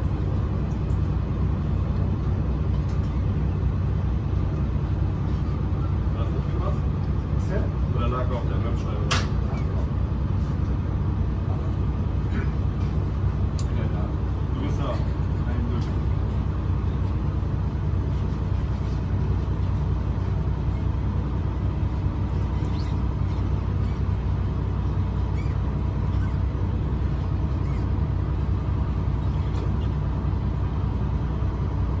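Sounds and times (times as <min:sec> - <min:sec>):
boat engine droning: 0:00.0 - 0:32.0.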